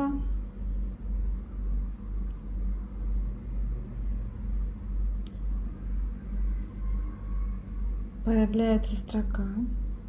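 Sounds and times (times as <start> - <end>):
deep rhythmic rumble: 0.0 - 10.0
faint steady hums: 0.0 - 10.0.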